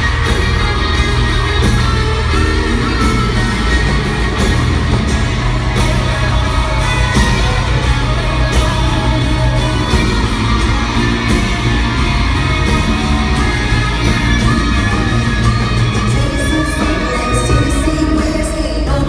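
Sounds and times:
crowd shouting: 0.0 - 18.2
live band playing: 0.0 - 19.0
woman singing: 14.1 - 19.0.

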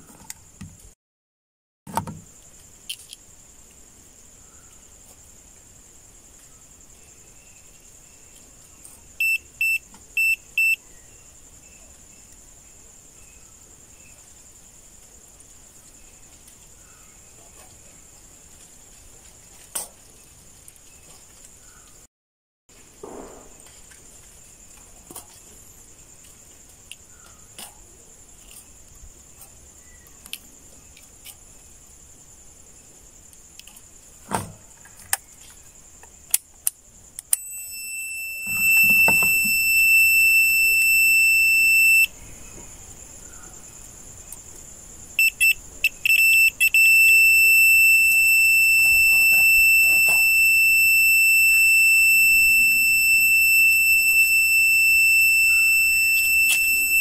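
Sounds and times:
high-pitched electronic alarm buzzer: 37.4 - 42.1, 45.2 - 57.0
faint high hiss: 38.1 - 57.0.

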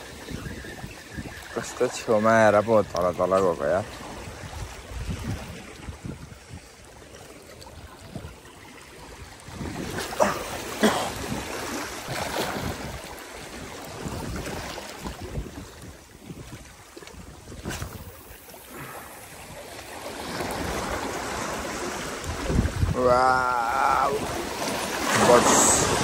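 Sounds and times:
small waves washing against rocks: 0.0 - 26.0
wind rumbling on microphone: 0.0 - 26.0
sharp water splashes: 7.4 - 26.0.

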